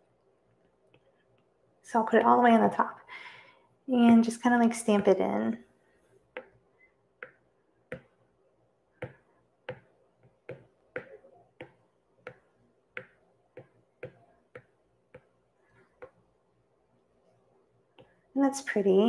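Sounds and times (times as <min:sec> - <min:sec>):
stylus tapping on tablet screen: 0:06.3 - 0:06.6, 0:07.2 - 0:08.2, 0:09.0 - 0:16.2, 0:17.9 - 0:18.2.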